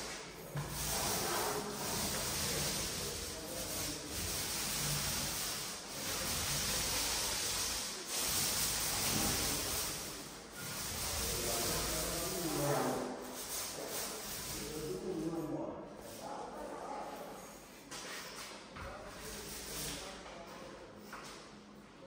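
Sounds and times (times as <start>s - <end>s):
paint roller rubbing on wall: 0.0s - 16.4s, 19.0s - 20.2s.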